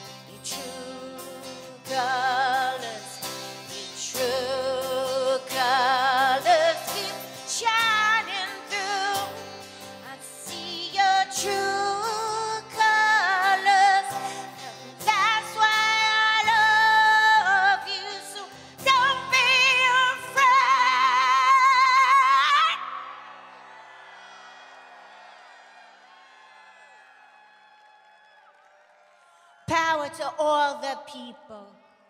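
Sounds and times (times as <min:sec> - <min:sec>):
woman singing with vibrato: 0:00.0 - 0:23.1, 0:29.7 - 0:31.9.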